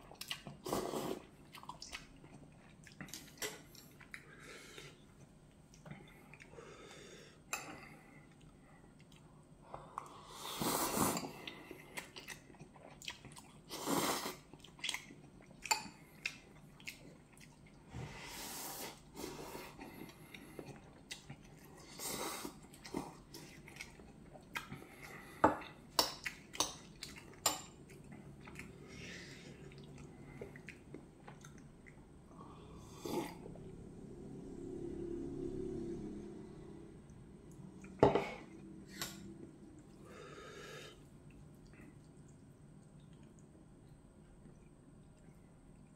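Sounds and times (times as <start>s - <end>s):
chewing: 0.0s - 6.6s, 8.2s - 10.2s, 11.0s - 17.8s, 19.6s - 32.1s, 41.0s - 45.9s
person slurping noodles: 0.6s - 1.3s, 10.2s - 11.5s, 13.7s - 14.5s, 32.7s - 33.6s.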